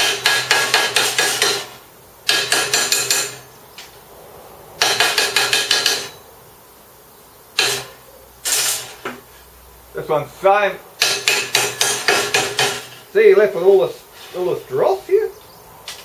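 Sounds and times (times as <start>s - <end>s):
metal strikes on steel slats: 0.0s - 3.5s, 4.8s - 6.2s, 7.6s - 9.0s, 11.0s - 13.1s.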